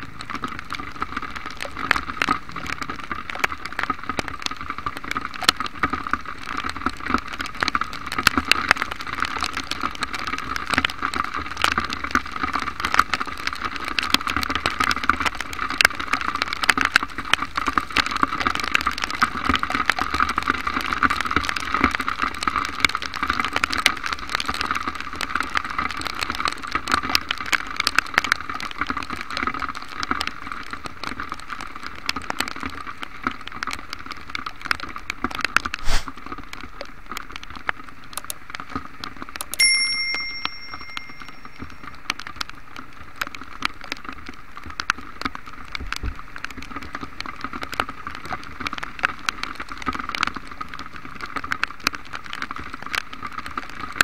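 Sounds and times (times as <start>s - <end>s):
heavy rain pattering: 0.0s - 39.4s, 40.9s - 54.0s
bell-like chime: 39.5s - 41.8s.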